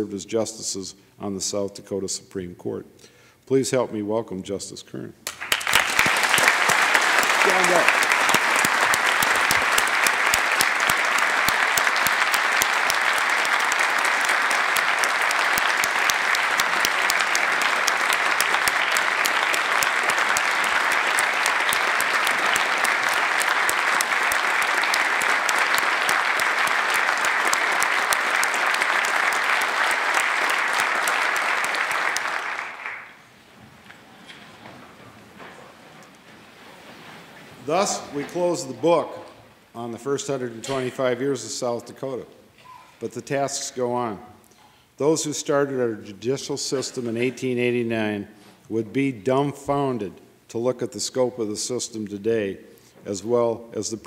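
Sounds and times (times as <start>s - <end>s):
audience applauding: 5.3s - 38.4s.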